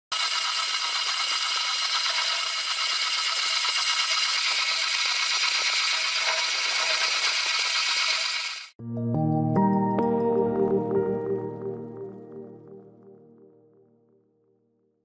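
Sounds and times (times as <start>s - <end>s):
model engine whirring and rattling: 0.1s - 8.8s.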